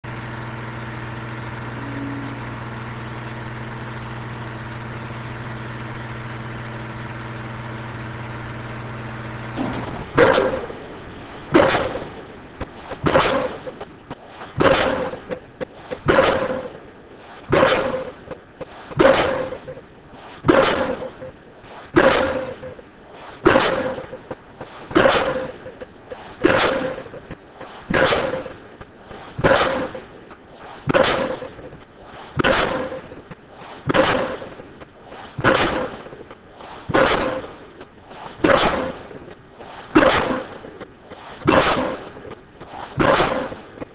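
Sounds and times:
pile driver hammering: 8.6 - 10.8, 11.5 - 13.9, 14.6 - 16.8, 17.5 - 18.4, 19.0 - 19.8, 20.4 - 21.3, 22.0 - 22.8, 23.4 - 28.6, 29.4 - 30.1, 30.9 - 31.7, 32.4 - 34.6, 35.4 - 37.6, 38.2 - 43.9.

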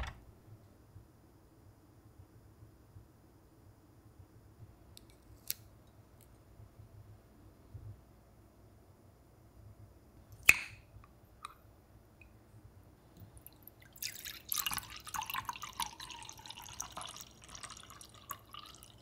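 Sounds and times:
juice pouring into glass mug: 13.4 - 19.0.

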